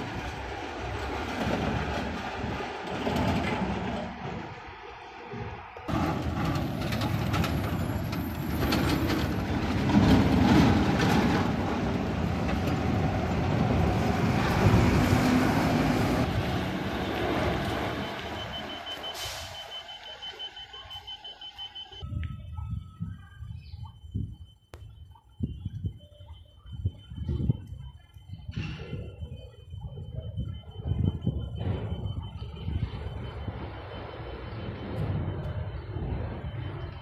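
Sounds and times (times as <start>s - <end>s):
diesel bus engine running: 0.0s - 22.0s
high reversing beeps: 13.8s - 37.0s.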